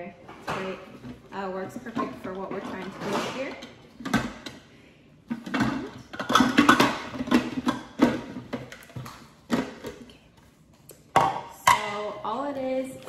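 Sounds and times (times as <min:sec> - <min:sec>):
plastic parts knocking and clicking: 0:00.4 - 0:04.6, 0:05.3 - 0:10.2.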